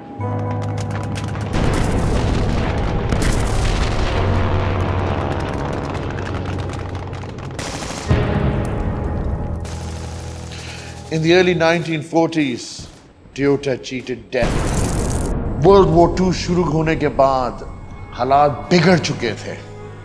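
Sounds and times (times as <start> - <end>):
explosions: 1.2 - 11.9, 14.4 - 18.1
low drone: 1.3 - 11.9
rapid gunfire: 1.5 - 11.5
loud boom: 1.5 - 11.7, 14.4 - 18.2.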